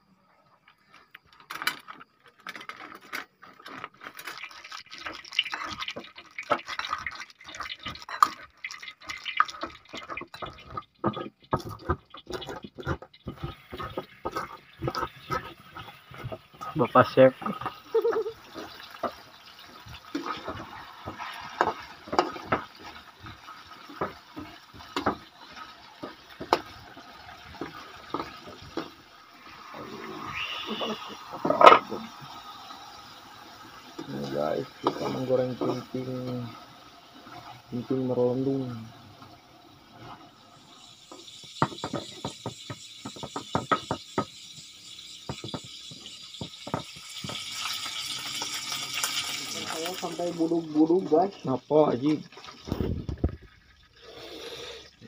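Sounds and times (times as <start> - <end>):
food sizzling in oil: 3.4 - 55.0
metal spatula scraping a wok: 12.0 - 16.7.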